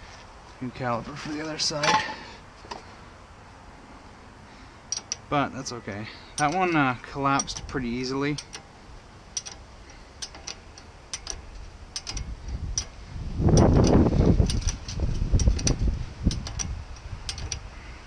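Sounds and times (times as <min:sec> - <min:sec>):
metal parts knocking and scraping: 0:01.2 - 0:02.9, 0:04.9 - 0:05.4, 0:06.2 - 0:17.8
hand ratchet clicking: 0:04.9 - 0:05.3, 0:06.3 - 0:17.8.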